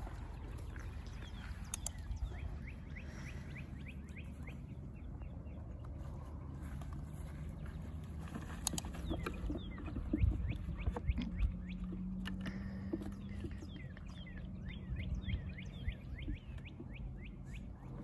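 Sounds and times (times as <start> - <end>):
birds chirping: 0.0 - 18.0
steady low hum: 0.0 - 18.0.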